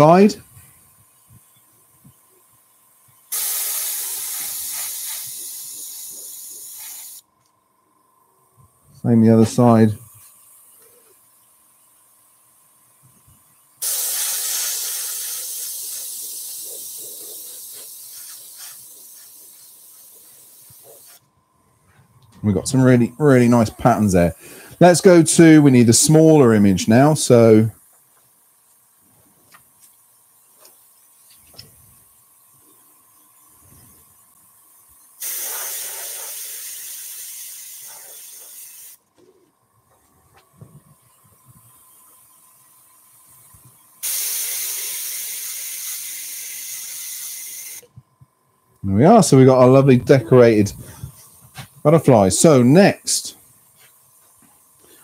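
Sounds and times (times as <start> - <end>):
airbrush hissing air: 3.1 - 7.2, 13.4 - 21.2, 31.7 - 39.0, 40.8 - 47.9.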